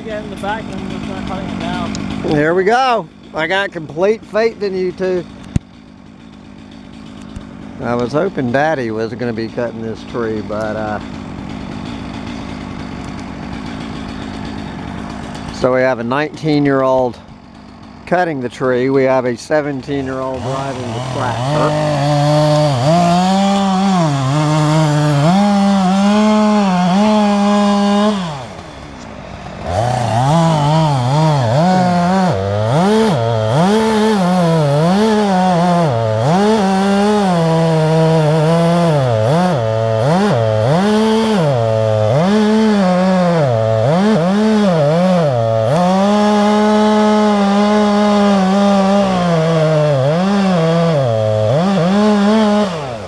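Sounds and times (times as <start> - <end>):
chainsaw cutting wood: 0.0 - 53.0.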